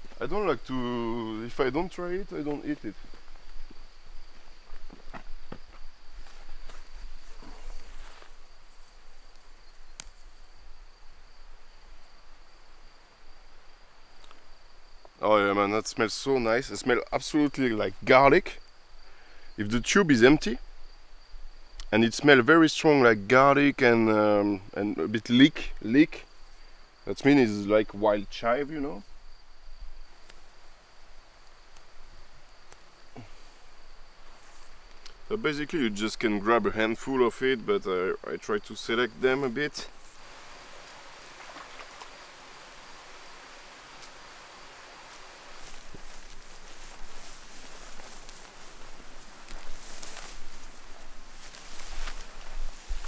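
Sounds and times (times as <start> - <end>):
plants rustling: 0.0 - 10.6, 30.0 - 36.6, 38.2 - 53.0
insect trill: 0.0 - 53.0.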